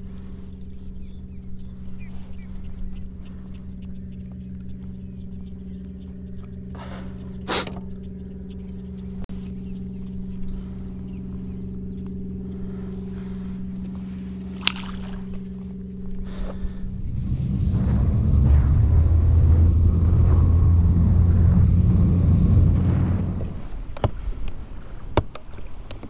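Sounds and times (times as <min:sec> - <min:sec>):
trolling motor humming: 0:00.0 - 0:26.0
fish splashing into water: 0:14.4 - 0:15.6.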